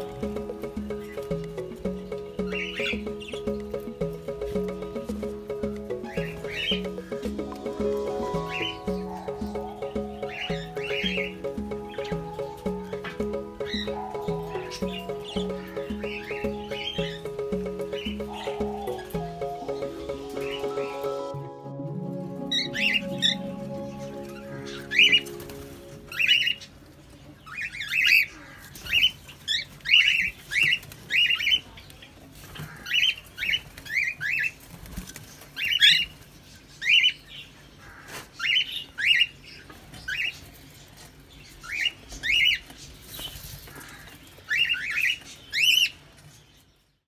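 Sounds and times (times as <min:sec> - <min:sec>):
background music: 0:00.0 - 0:26.9.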